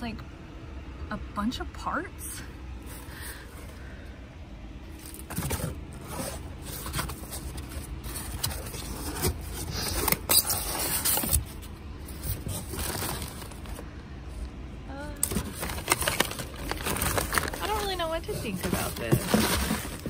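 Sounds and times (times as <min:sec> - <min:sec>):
appliance parts scraping and knocking: 0:15.2 - 0:20.0.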